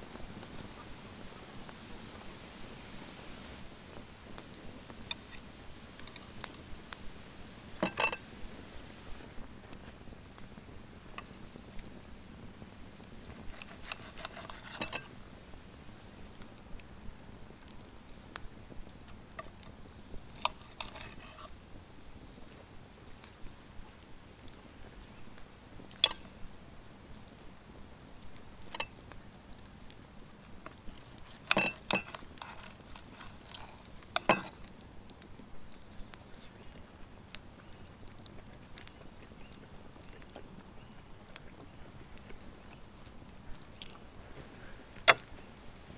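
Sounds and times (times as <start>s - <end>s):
fork clinking on plate: 7.8s - 8.2s, 31.5s - 32.7s
knife scraping on plate: 13.4s - 15.1s, 31.3s - 34.5s.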